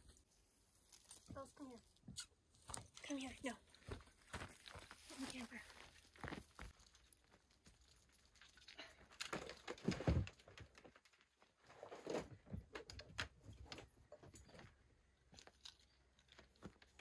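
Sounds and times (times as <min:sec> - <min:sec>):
footsteps on gravel: 0:02.6 - 0:08.0
camping gear knocks and scrapes: 0:09.3 - 0:11.0, 0:11.6 - 0:14.8.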